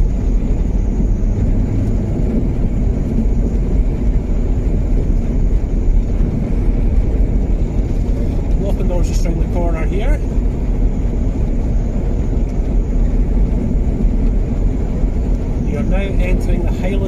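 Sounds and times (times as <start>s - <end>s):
car engine and tyre noise: 0.0s - 17.0s.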